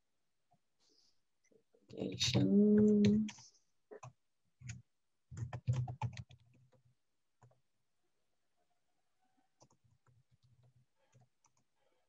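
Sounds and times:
person humming: 2.4 - 3.3
keyboard typing: 2.4 - 6.8.

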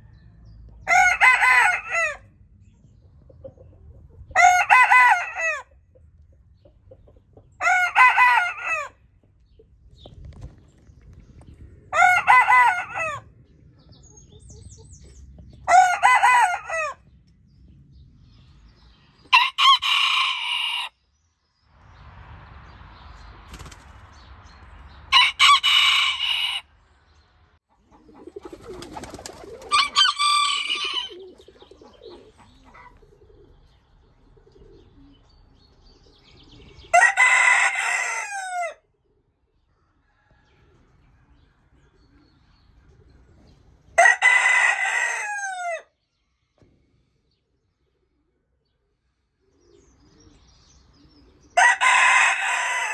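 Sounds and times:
roosters crowing: 0.0 - 2.4, 4.3 - 5.8, 7.5 - 9.1, 11.9 - 13.4, 15.5 - 17.2, 19.2 - 21.0, 25.1 - 27.0, 28.0 - 33.5, 36.6 - 38.9, 43.8 - 46.0, 51.2 - 52.9
hen clucking: 27.7 - 33.7.

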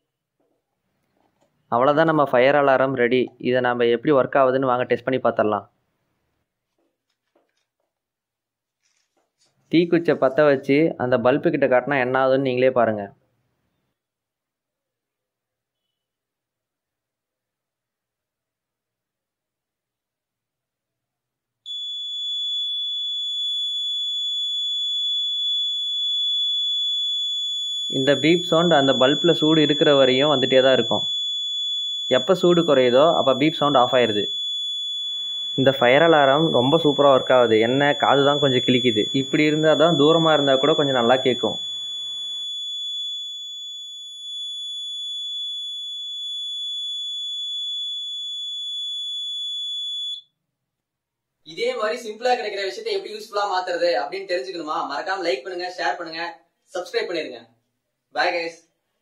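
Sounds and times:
high-pitched buzzer tone: 27.5 - 47.6.

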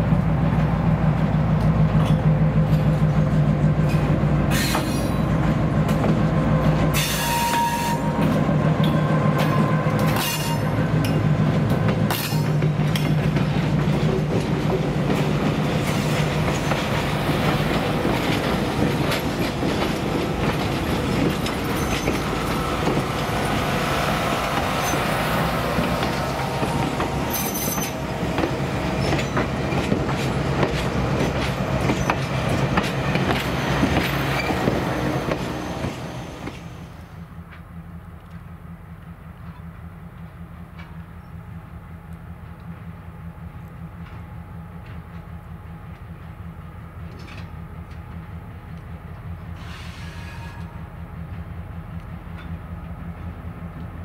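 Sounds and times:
train wheels clattering over rail joints: 0.5 - 36.8, 47.0 - 48.2.

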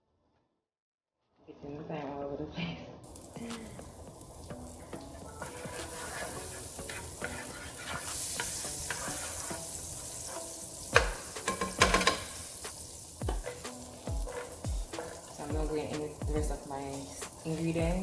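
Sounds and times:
butter sizzling in a frying pan: 3.0 - 18.0
wooden spatula stirring: 3.1 - 18.0.

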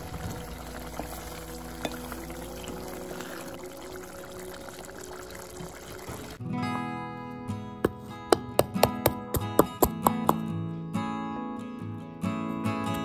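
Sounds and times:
curry bubbling and sizzling: 0.0 - 6.4.

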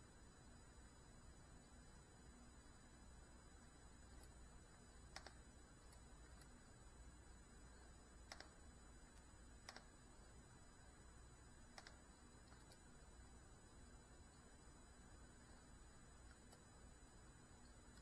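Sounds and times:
faint sharp clicks: 5.1 - 6.6, 8.2 - 9.9, 11.7 - 12.9.

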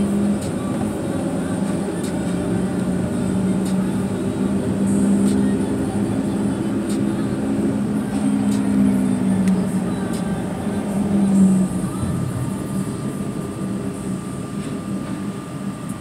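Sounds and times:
car engine drone: 0.0 - 16.0
road noise rush: 0.0 - 16.0.

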